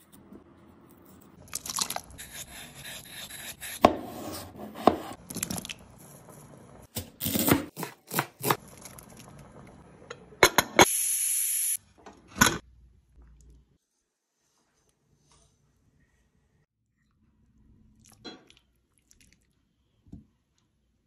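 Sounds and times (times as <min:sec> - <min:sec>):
knife chopping on cutting board: 0:02.3 - 0:05.2.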